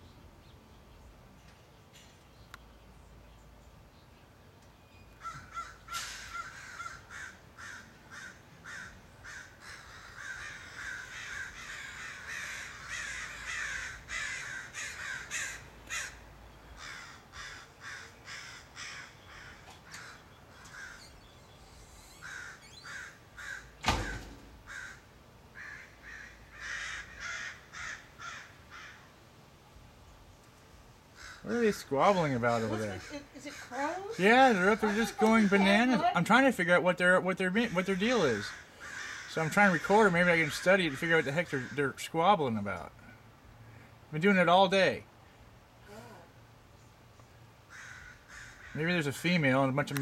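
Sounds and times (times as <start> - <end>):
crows cawing: 5.2 - 21.4, 22.1 - 29.1, 31.0 - 36.1, 37.4 - 42.1, 47.6 - 49.1
sharp knock: 23.8 - 24.6.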